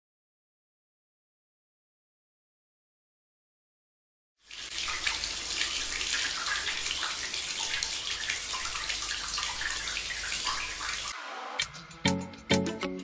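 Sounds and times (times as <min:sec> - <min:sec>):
water pouring and splashing: 0:04.4 - 0:11.2.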